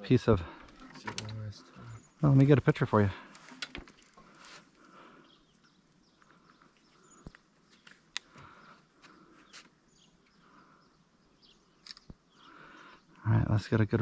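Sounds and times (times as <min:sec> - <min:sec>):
faint sharp clicks: 0:07.2 - 0:08.5.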